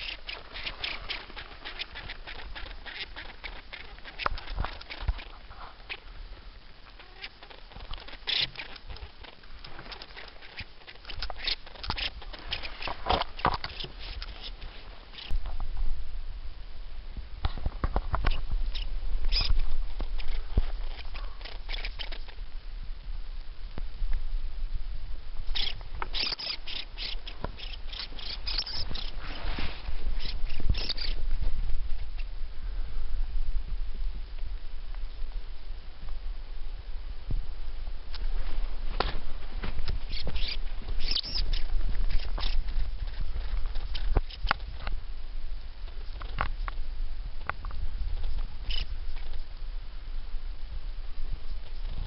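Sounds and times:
lemming squeaking: 0.0 - 6.1, 6.9 - 15.4, 18.2 - 22.4, 25.4 - 31.3, 40.0 - 44.8
twigs and leaves rustling: 0.0 - 15.8, 17.5 - 22.6, 25.5 - 32.4, 38.1 - 45.0.

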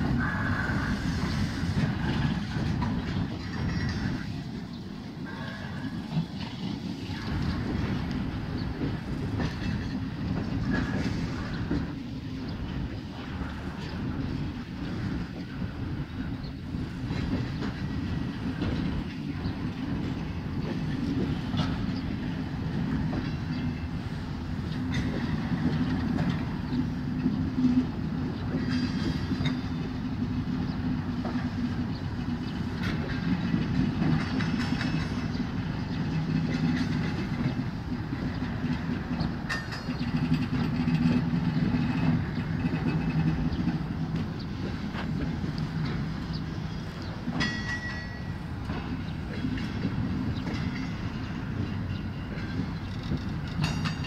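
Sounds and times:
train wheels rumbling on rail: 0.0 - 54.0
wheels clicking and clacking: 24.6 - 54.0.

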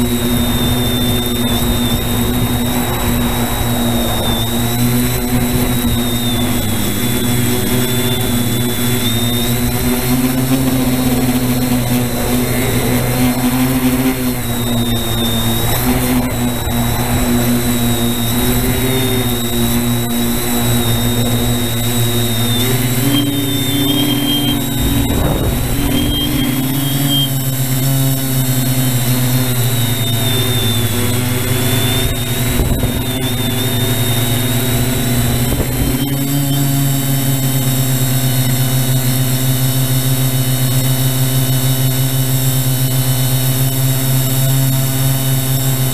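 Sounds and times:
faint high whine: 0.0 - 45.9
quadcopter motors humming: 0.0 - 45.9.

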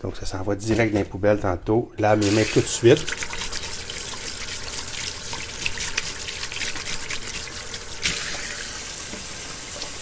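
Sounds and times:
tap water running and splashing: 2.2 - 10.0.

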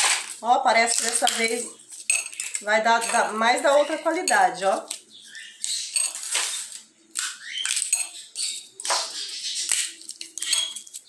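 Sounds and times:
bean pods cracking open: 0.0 - 2.7, 4.8 - 11.0
seeds clicking onto a ceramic plate: 0.0 - 6.2.

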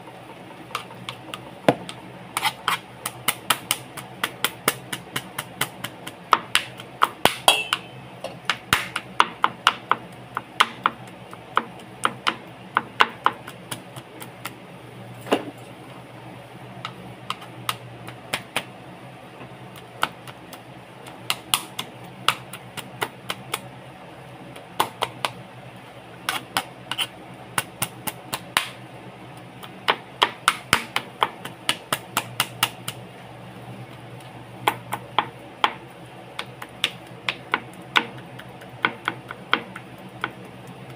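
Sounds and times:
knife chopping on plastic board: 0.8 - 14.6, 21.0 - 23.6, 24.8 - 25.4, 29.6 - 33.0, 34.6 - 35.8, 36.4 - 40.9.

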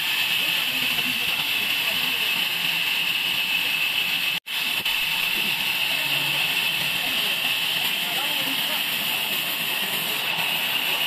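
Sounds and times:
band saw running: 0.0 - 11.0.

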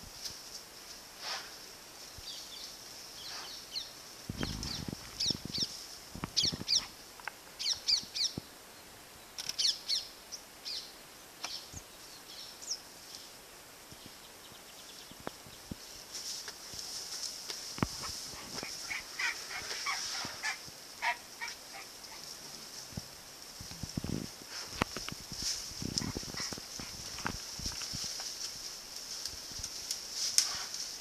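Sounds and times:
wild birds chirping: 2.0 - 16.0, 17.8 - 23.5, 25.8 - 27.4.

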